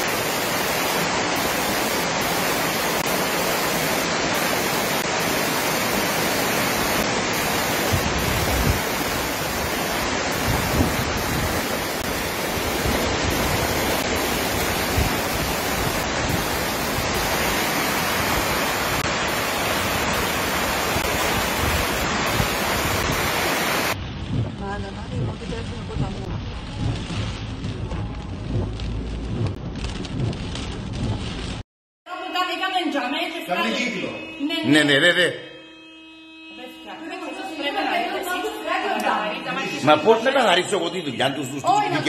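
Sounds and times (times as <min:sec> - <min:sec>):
rushing floodwater: 0:00.0 - 0:29.4, 0:37.3 - 0:42.0
low rumble of torrent: 0:00.0 - 0:31.6
torrential rain: 0:00.0 - 0:31.7, 0:37.4 - 0:42.0.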